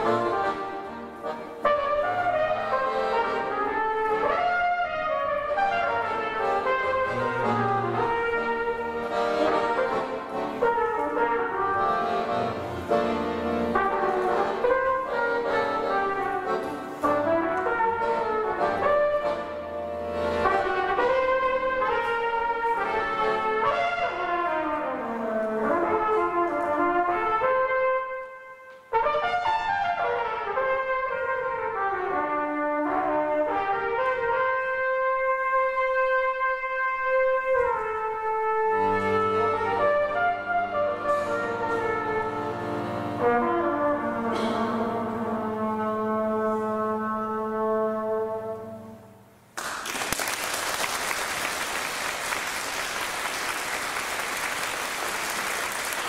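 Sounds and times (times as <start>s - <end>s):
trumpet melody: 0.0s - 49.4s
accordion chords: 0.0s - 49.8s
audience applause: 49.6s - 56.0s.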